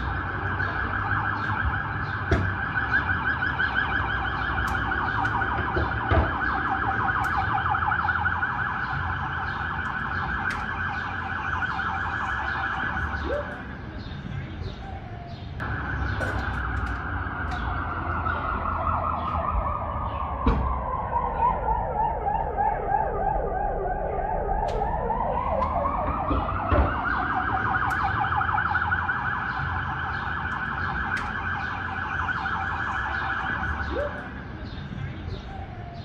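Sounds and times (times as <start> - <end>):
electronic siren wailing: 0.0 - 13.5, 14.8 - 34.3
street traffic rumbling: 0.0 - 36.0.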